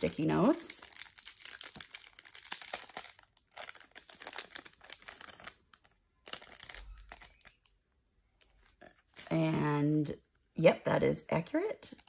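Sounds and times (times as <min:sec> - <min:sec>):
crinkly wrapping crackling: 0:00.0 - 0:07.7.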